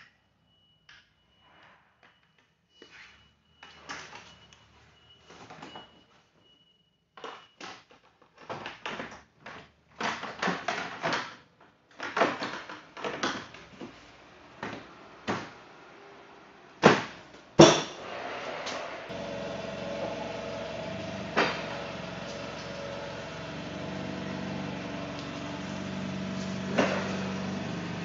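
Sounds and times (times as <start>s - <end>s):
sharp bangs: 16.9s - 27.6s.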